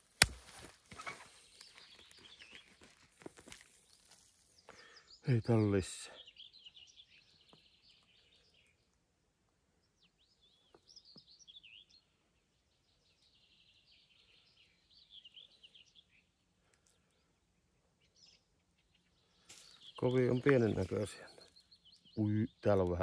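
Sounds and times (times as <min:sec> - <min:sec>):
faint songbird singing: 0:00.9 - 0:23.0.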